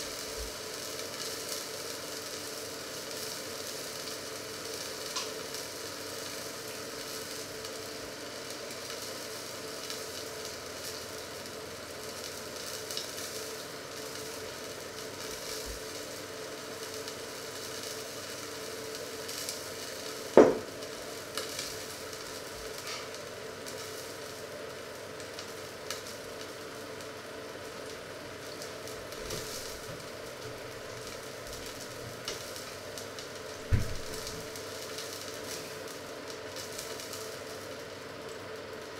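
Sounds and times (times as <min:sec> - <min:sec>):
frying pan sizzling: 0:00.0 - 0:38.9
sharp knock: 0:20.4 - 0:20.6.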